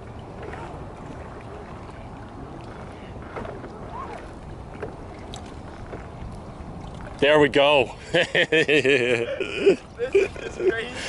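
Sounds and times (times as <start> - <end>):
water lapping against boat hull: 0.0 - 11.0.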